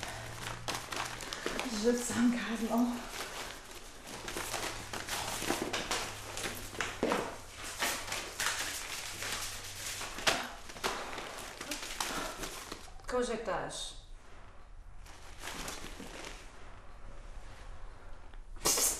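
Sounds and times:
handbag being rummaged through: 0:00.0 - 0:13.0, 0:15.0 - 0:16.8
papers rustling: 0:00.0 - 0:13.0, 0:14.3 - 0:17.1.

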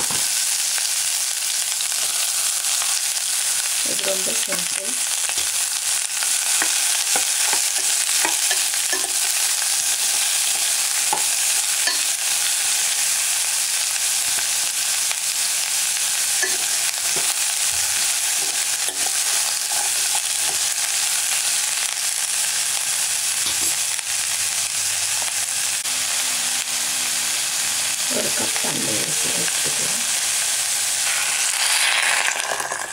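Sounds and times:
vegetables sizzling in oil: 0:00.0 - 0:32.9
spoon scraping a pot: 0:06.4 - 0:12.2, 0:16.4 - 0:20.7.

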